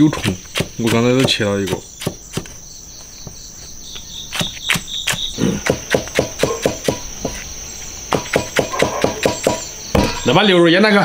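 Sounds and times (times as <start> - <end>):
crickets trilling: 0.0 - 11.0
knife chopping on cutting board: 8.1 - 10.1.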